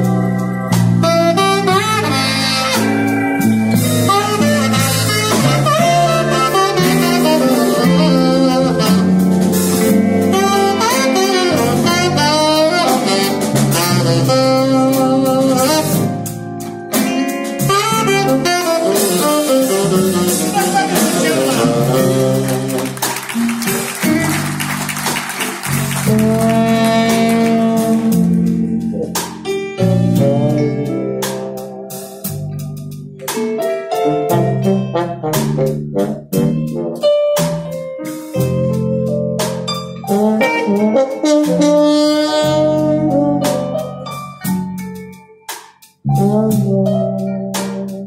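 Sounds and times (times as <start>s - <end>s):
saxophone melody: 0.0s - 32.0s, 33.2s - 37.3s, 40.0s - 44.9s, 46.0s - 48.0s
trombone: 0.0s - 45.2s, 46.0s - 48.0s
bass line: 0.0s - 45.3s, 46.0s - 48.0s
jazz blues band playing: 0.0s - 48.0s
keyboard: 0.0s - 48.0s
electric guitar: 15.5s - 32.5s.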